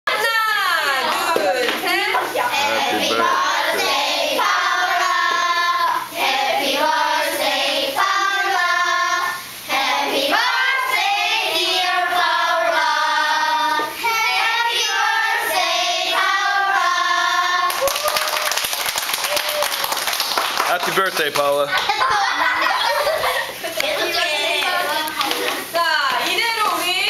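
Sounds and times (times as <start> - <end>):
children singing in unison: 2.6 - 17.8.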